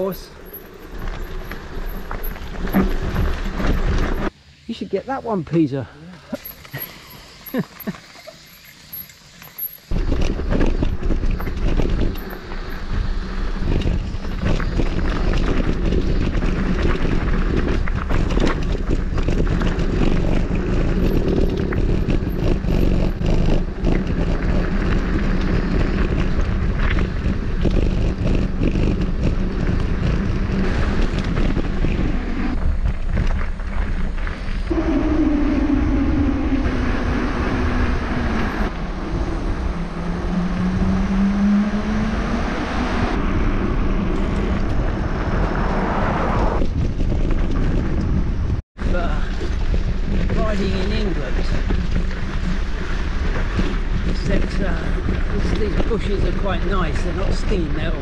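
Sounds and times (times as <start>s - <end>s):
bike rattling and knocking: 0.0s - 4.3s, 6.4s - 34.7s, 46.6s - 58.0s
wind rushing over microphone: 9.9s - 58.0s.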